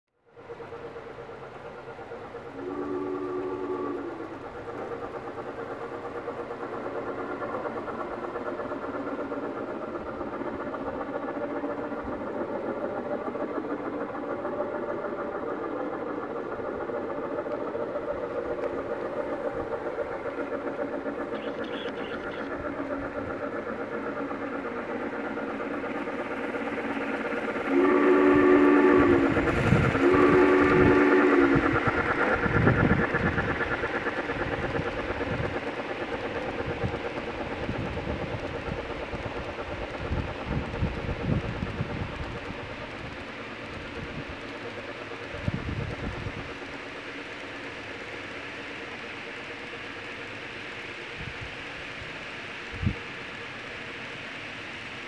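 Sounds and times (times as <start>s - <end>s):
model steam locomotive chuffing: 0.2s - 55.0s
train whistle: 2.3s - 5.1s, 20.6s - 22.5s, 26.8s - 33.4s.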